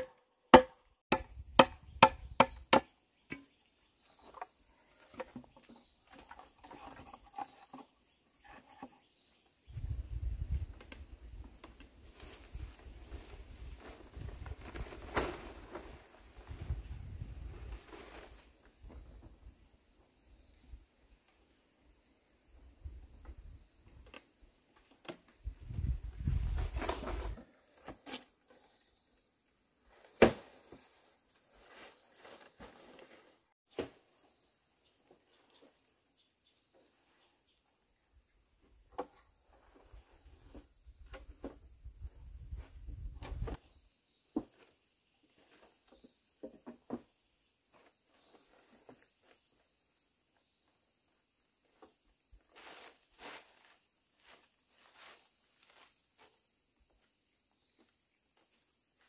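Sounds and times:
knocks of bamboo poles: 0.0 - 3.5
insects chirping: 0.0 - 59.0
rustling of leaf thatch: 12.0 - 18.7, 52.5 - 56.3.

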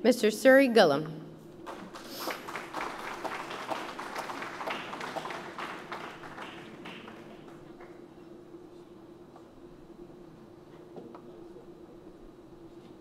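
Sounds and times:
steady low hum: 0.0 - 13.0
audience applauding: 1.6 - 8.0.

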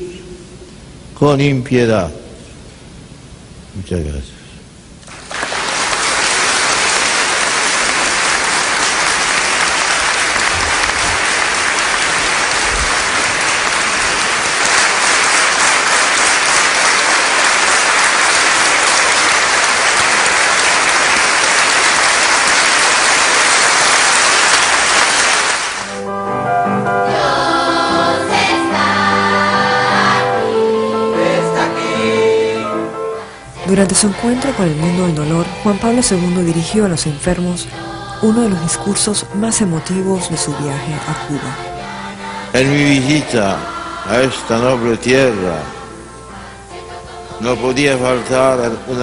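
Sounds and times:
audience applauding: 5.0 - 26.0
choir singing: 6.2 - 25.8, 26.6 - 49.0.

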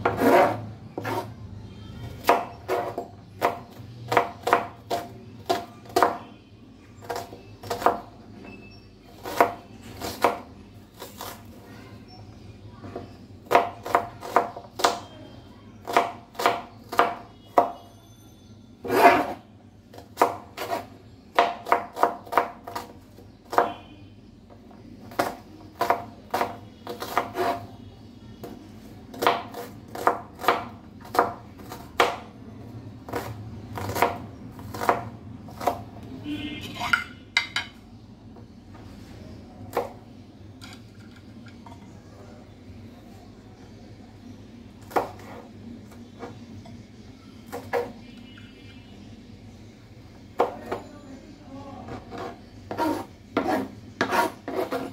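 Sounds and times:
knife chopping on cutting board: 25.1 - 27.6, 33.1 - 35.8, 44.9 - 45.5, 51.9 - 54.9.

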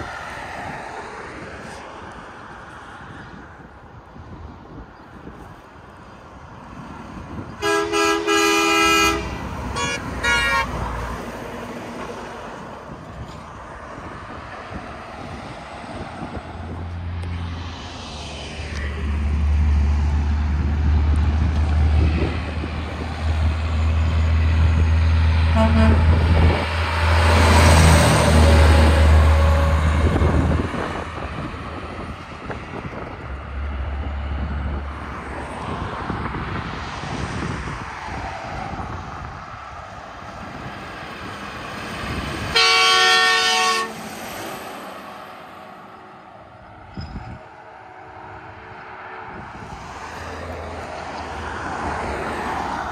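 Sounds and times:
diesel engine drone: 7.3 - 37.0
truck air horn: 7.6 - 11.0, 25.5 - 30.3, 42.5 - 44.0.

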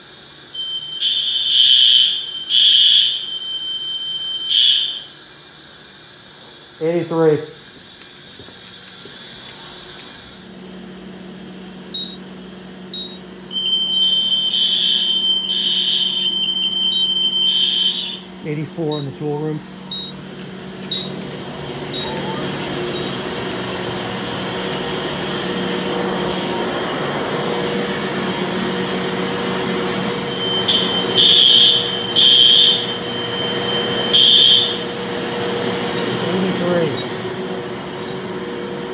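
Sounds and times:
high-pitched hiss: 0.0 - 10.6
high-pitched alarm tone: 0.5 - 5.3, 13.5 - 19.2, 28.9 - 37.3
short high beeps: 13.0 - 18.2, 19.9 - 20.2.

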